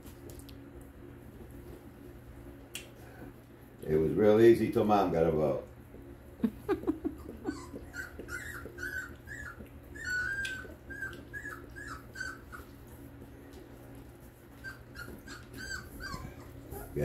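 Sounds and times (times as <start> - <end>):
puppy whimpering squeaks: 7.2 - 12.9, 14.5 - 17.0.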